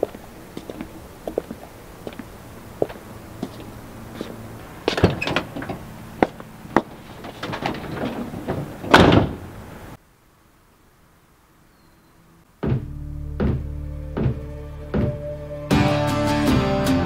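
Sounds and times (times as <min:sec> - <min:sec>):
truck door slamming: 0:04.6 - 0:10.0
music: 0:12.6 - 0:17.0.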